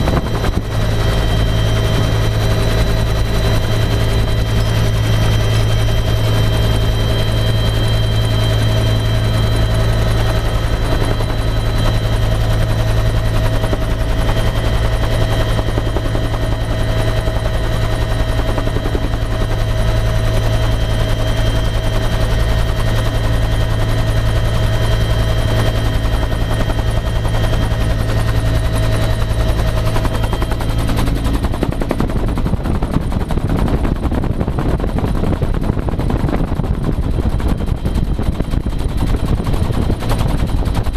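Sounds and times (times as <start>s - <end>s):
helicopter rotor and turbine noise: 0.0s - 40.9s.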